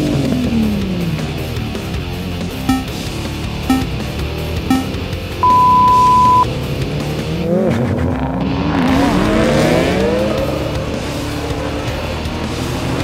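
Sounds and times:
race start signal beep: 2.7s - 3.0s, 3.7s - 3.9s, 4.7s - 6.5s.

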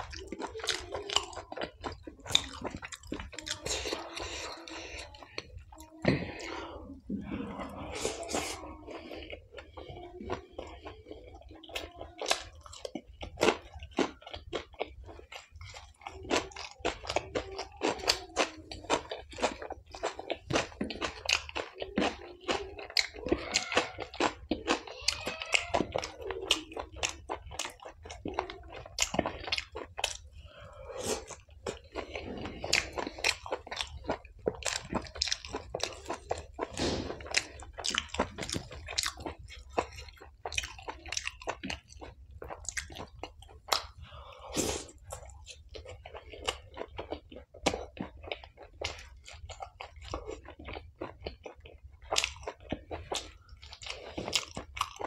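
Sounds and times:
close chewing mouth sounds: 0.0s - 55.0s.

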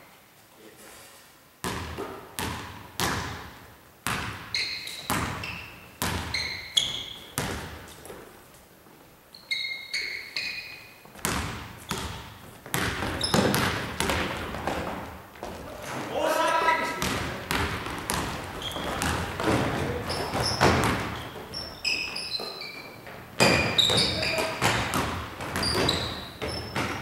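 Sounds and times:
basketball bouncing on wooden floor: 1.6s - 8.2s, 11.1s - 16.0s, 16.9s - 27.0s
sneaker squeaks: 4.1s - 8.3s, 9.3s - 27.0s.

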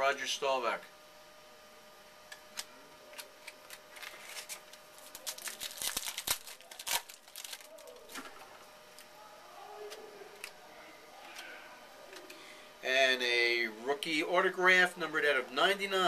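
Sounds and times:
trading cards being handled: 2.4s - 9.1s.

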